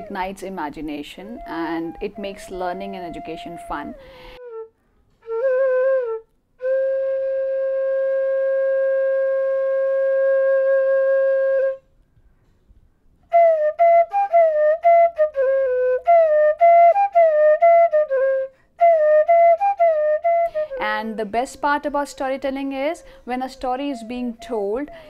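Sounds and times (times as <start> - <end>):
solo flute playing: 1.2 - 11.9, 13.3 - 21.2.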